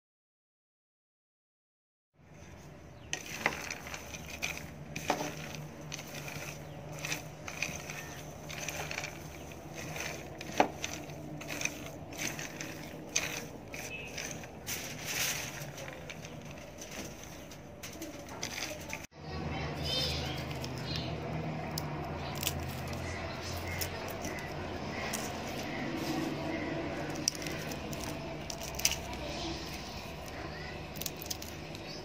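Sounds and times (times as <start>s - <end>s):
peanuts rattling in a pan: 3.1s - 19.1s, 21.7s - 25.7s, 27.0s - 32.0s.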